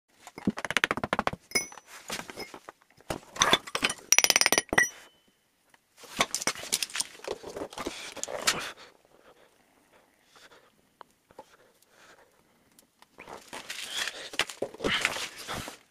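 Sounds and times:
metal pieces clinking: 3.4 - 5.1.

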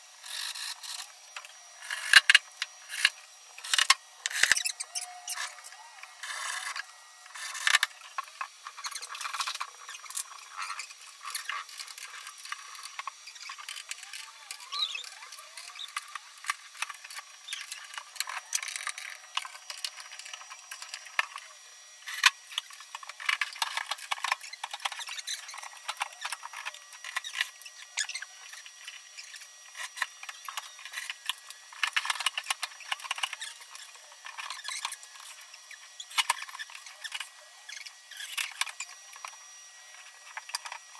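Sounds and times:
high squeaky chirps: 4.3 - 6.0, 8.8 - 9.2, 13.2 - 16.2.

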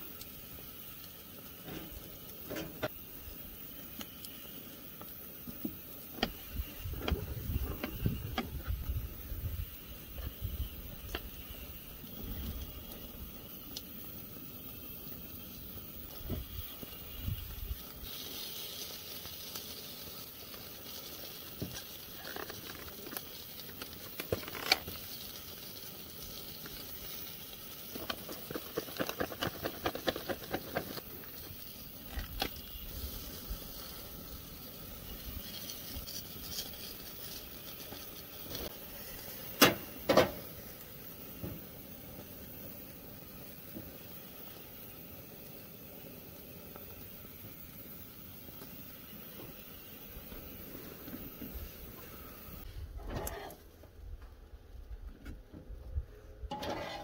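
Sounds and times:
food sizzling on a grill: 0.0 - 53.8, 56.5 - 57.0
metal utensils clicking and scraping: 27.9 - 31.5, 56.5 - 57.0.

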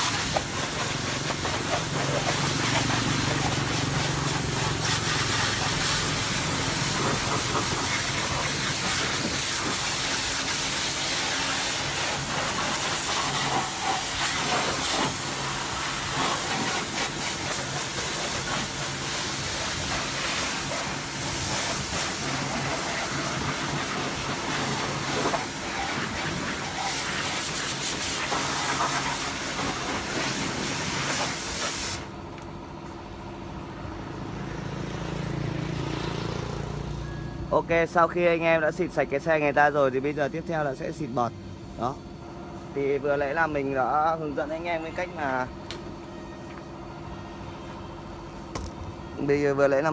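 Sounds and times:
pressure washer spray hissing: 0.0 - 32.1
pump motor humming: 0.0 - 36.5.

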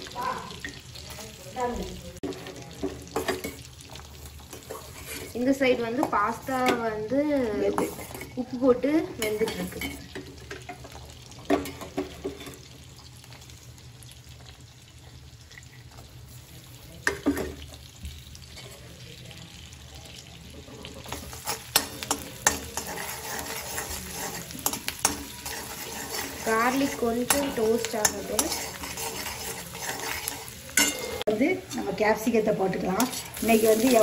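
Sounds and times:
garlic sizzling in butter: 0.0 - 34.0
ladle scraping and tapping pan: 7.7 - 8.4, 21.0 - 31.9
clinks on a pan: 30.8 - 31.8.

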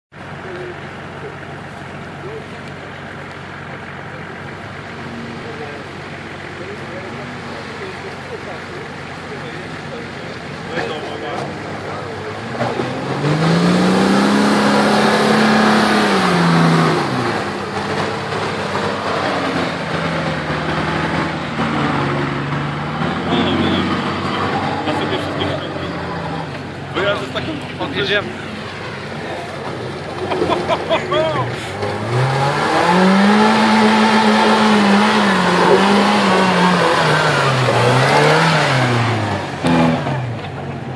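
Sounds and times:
engine revving hard: 10.7 - 28.3, 29.0 - 40.9.

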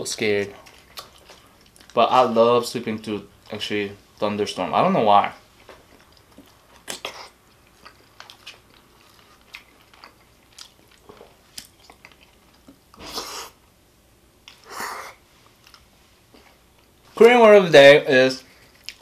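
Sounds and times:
wet chewing and smacking: 0.2 - 2.1, 5.5 - 13.1, 15.4 - 17.0, 18.5 - 19.0.

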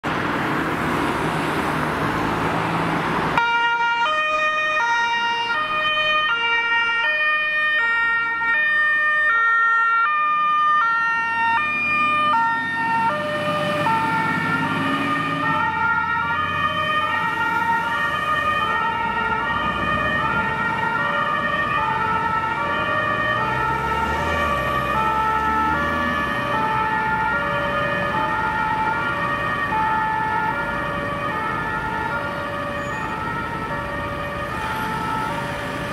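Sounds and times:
road noise: 0.0 - 35.9
two-tone fire engine siren: 0.0 - 35.9
truck engine rumbling: 10.4 - 35.9.

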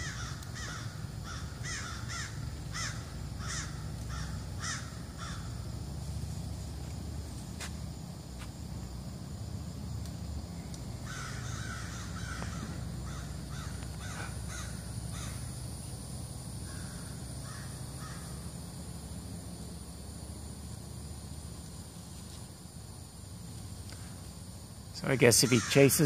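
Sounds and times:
crows cawing: 0.0 - 5.7, 11.0 - 15.5, 16.6 - 18.4, 25.3 - 26.0.

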